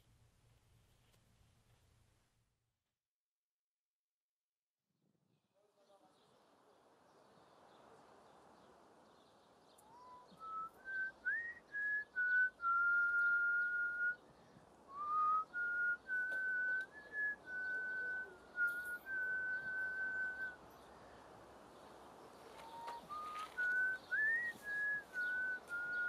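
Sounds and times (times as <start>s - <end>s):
person whistling a slow tune: 9.9s - 14.2s, 14.9s - 20.6s, 22.7s - 26.0s.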